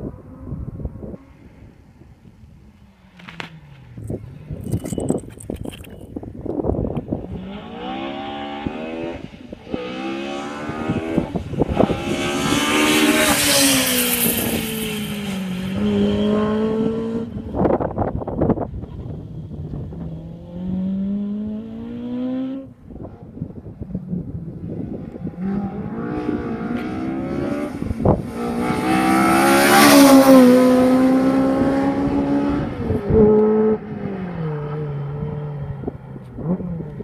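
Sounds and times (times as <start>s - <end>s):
rally car engine revving: 7.2s - 23.2s, 24.7s - 37.0s.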